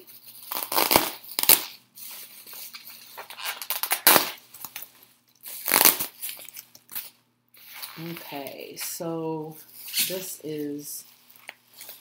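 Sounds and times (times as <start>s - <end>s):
paper packaging crinkling: 0.0s - 8.8s.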